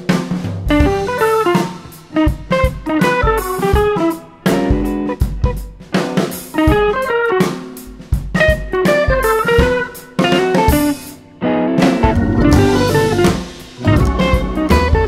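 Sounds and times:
drum kit: 0.0s - 15.0s
plucked guitar melody: 8.5s - 15.0s.

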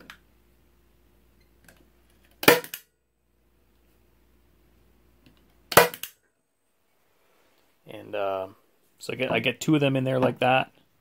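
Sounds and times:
staple gun snap: 5.7s - 6.2s.

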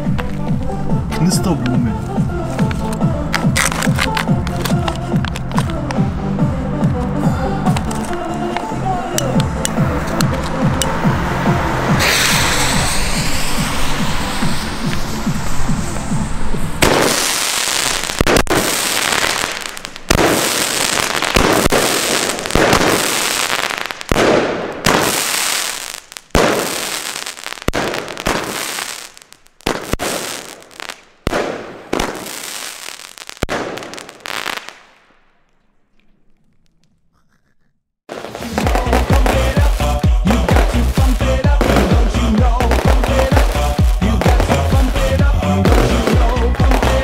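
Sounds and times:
crackling firework stars: 2.4s - 6.0s, 11.9s - 37.0s, 38.1s - 47.0s
firework shots: 2.6s - 6.0s, 11.8s - 35.5s, 38.1s - 47.0s.

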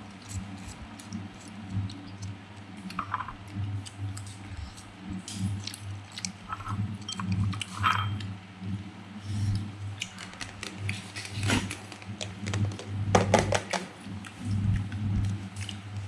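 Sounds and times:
crunchy chewing: 0.0s - 8.3s, 14.1s - 16.0s
small clicks and crunches: 10.0s - 13.9s.

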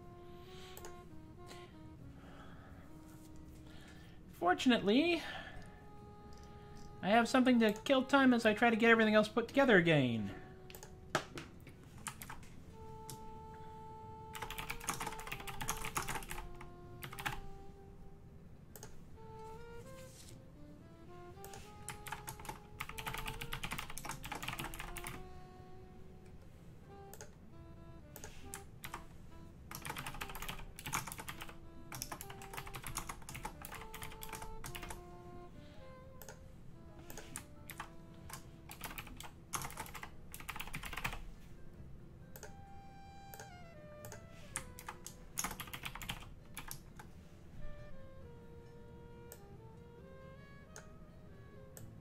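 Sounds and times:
quiet background music: 0.0s - 52.0s
typing on computer keyboard: 12.0s - 12.4s, 14.3s - 17.4s, 21.5s - 25.3s, 29.7s - 35.0s, 37.0s - 41.2s, 44.1s - 47.0s.

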